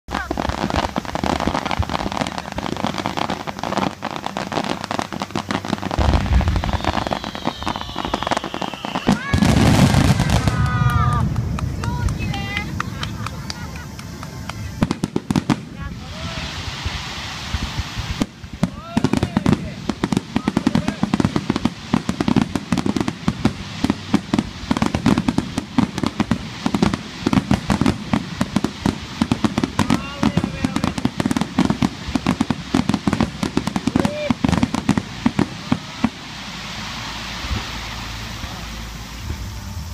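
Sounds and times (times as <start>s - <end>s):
fireworks crackling: 0.0s - 39.9s
low fireworks rumble: 0.0s - 39.9s
firework shells booming: 0.1s - 15.8s.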